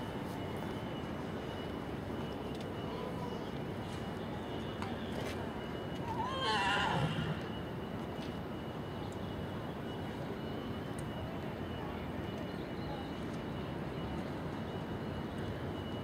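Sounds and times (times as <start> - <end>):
steady background noise: 0.0 - 16.0
pony whinnying: 6.1 - 7.5.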